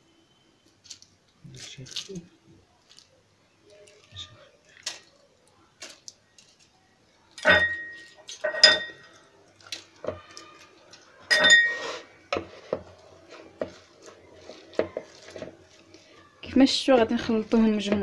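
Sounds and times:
foil crinkling: 0:00.7 - 0:07.4, 0:09.0 - 0:11.3, 0:11.9 - 0:17.9
sharp clinks on ceramic bowl: 0:07.4 - 0:09.0, 0:11.3 - 0:11.8.

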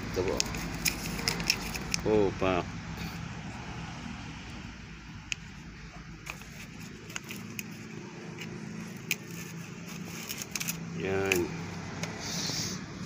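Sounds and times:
plastic cups clicking: 0:00.3 - 0:02.0, 0:06.2 - 0:07.8.

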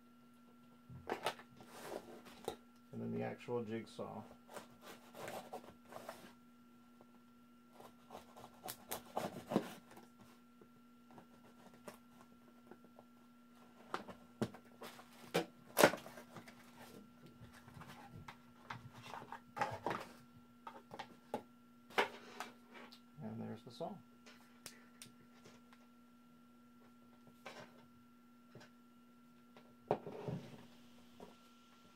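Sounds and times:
faint steady hum: 0:00.0 - 0:31.9
cardboard box and packaging rustling: 0:13.6 - 0:21.4.

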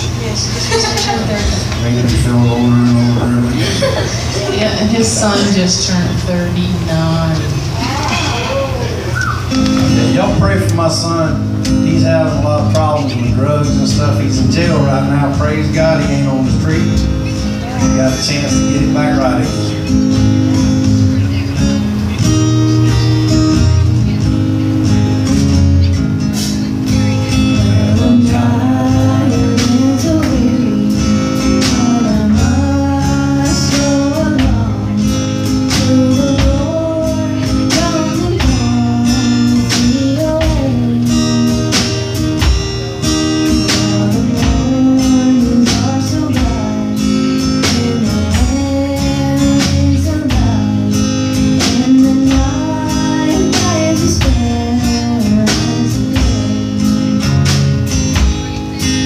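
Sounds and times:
acoustic guitar strumming: 0:00.0 - 0:59.0
drum kit beat: 0:00.0 - 0:59.0
voices singing: 0:26.4 - 0:59.0.

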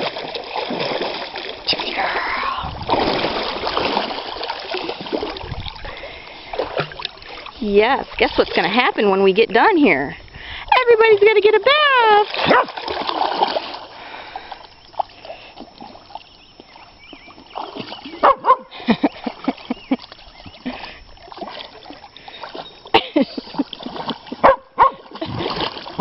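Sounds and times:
dogs splashing in water: 0:00.0 - 0:09.4, 0:10.7 - 0:26.0
dog yelps: 0:12.5 - 0:12.7, 0:24.4 - 0:25.0.

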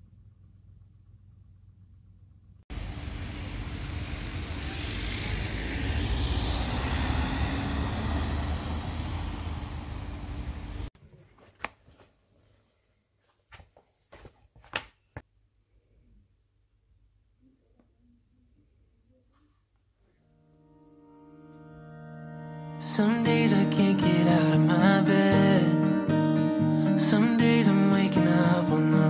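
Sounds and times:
vehicle heavy rushing noise: 0:02.7 - 0:10.9.

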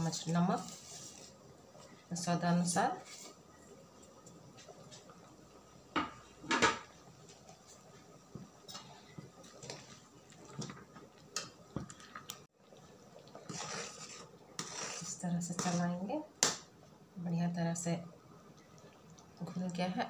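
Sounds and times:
spatula scraping metal pan: 0:13.5 - 0:16.0.

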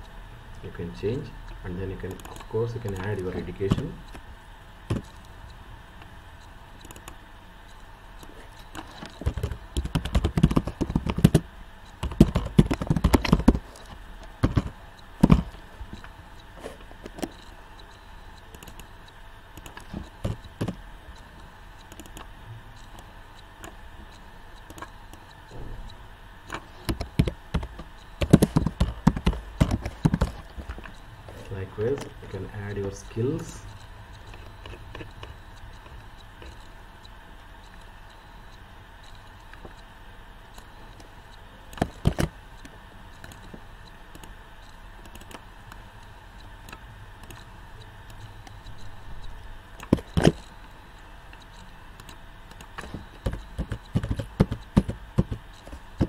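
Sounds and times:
typing on computer keyboard: 0:08.6 - 0:11.4, 0:12.0 - 0:16.1, 0:18.5 - 0:18.9, 0:19.6 - 0:20.8, 0:26.5 - 0:31.0, 0:41.7 - 0:43.5, 0:45.0 - 0:45.4, 0:52.0 - 0:56.0.

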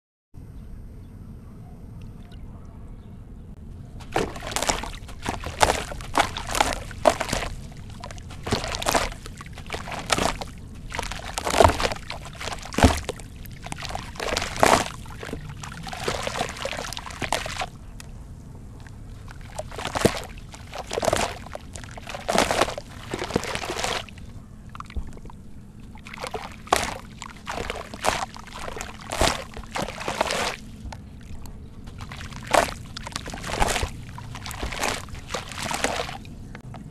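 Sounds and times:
slurry pouring into water: 0:04.0 - 0:17.7, 0:19.3 - 0:24.2, 0:26.0 - 0:30.7, 0:31.9 - 0:36.3
hands sloshing in water: 0:04.0 - 0:17.8, 0:19.1 - 0:36.4.

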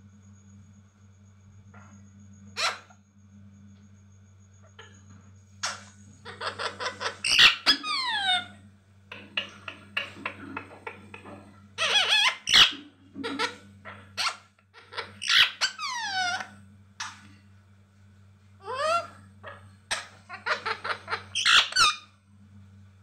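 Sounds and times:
parakeet squawking and chattering: 0:02.6 - 0:02.9, 0:05.6 - 0:17.3, 0:18.6 - 0:22.1.

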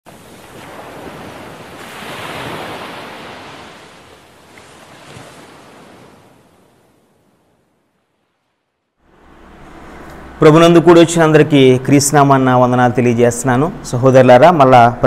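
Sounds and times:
sea waves breaking on shore: 0:00.1 - 0:08.8.

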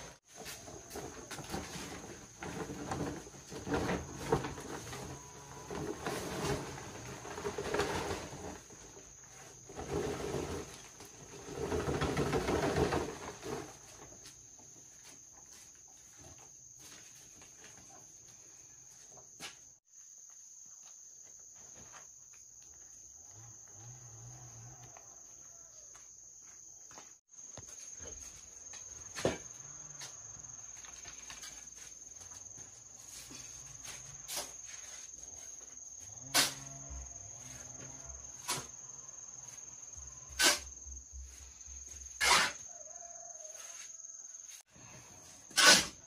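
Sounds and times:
insects trilling: 0:19.9 - 0:46.0.

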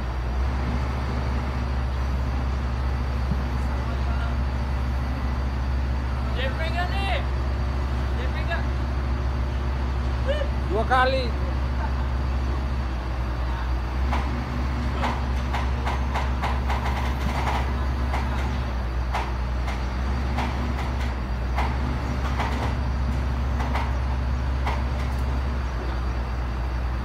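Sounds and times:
excavator diesel engine running: 0:00.0 - 0:27.0
sharp metallic clicks and clanks: 0:15.0 - 0:24.0.

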